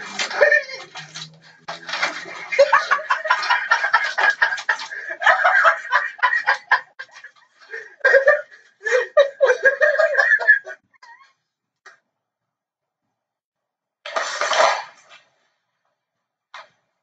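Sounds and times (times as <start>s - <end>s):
person laughing hard: 0.0s - 1.1s, 1.9s - 11.2s.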